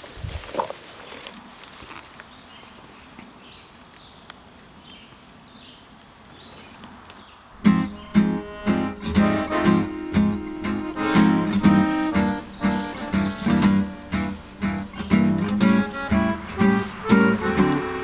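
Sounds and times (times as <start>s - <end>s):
leaves and brush rustling: 0.0s - 18.0s
swing acoustic guitar music: 7.6s - 18.0s
twigs snapping: 17.4s - 18.0s.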